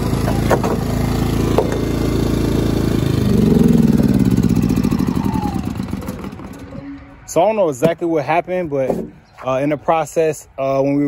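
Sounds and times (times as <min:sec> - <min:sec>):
portable generator engine running: 0:00.0 - 0:07.2.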